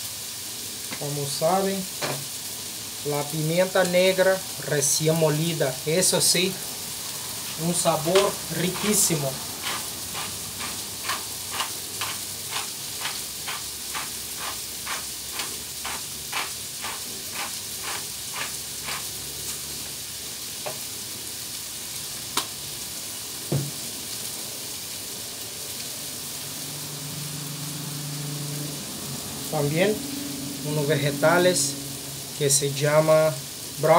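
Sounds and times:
food sizzling on griddle: 0:00.0 - 0:33.9
soft thump: 0:23.5 - 0:23.8.

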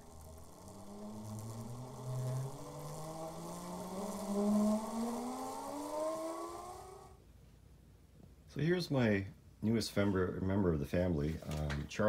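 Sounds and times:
rising buzzing whine: 0:00.0 - 0:07.3.

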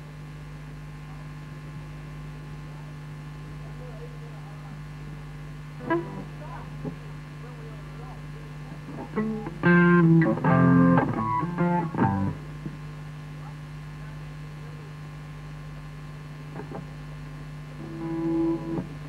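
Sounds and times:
amplifier mains hum: 0:00.0 - 0:19.0
electric guitar notes: 0:05.8 - 0:06.4, 0:08.9 - 0:12.4, 0:17.8 - 0:19.0.

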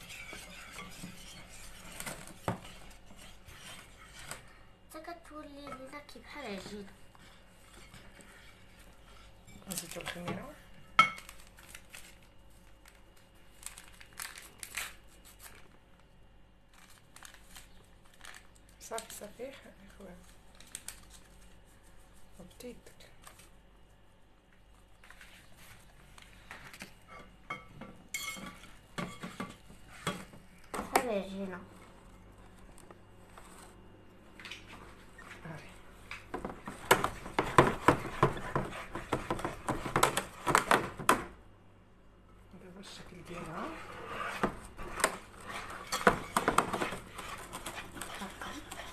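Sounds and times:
whisk stirring batter in bowl: 0:00.0 - 0:04.7, 0:05.6 - 0:10.6, 0:36.3 - 0:40.8, 0:43.2 - 0:48.9.

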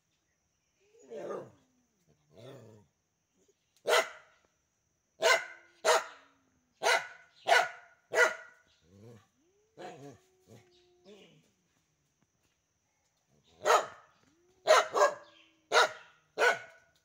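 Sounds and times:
dog barking: 0:03.8 - 0:04.3, 0:05.2 - 0:08.6, 0:13.6 - 0:16.8.

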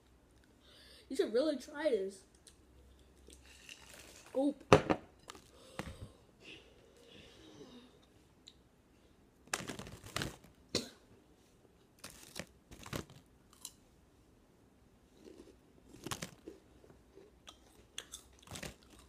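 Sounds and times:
crunchy snacks being chewed: 0:12.0 - 0:13.8, 0:15.2 - 0:19.0.

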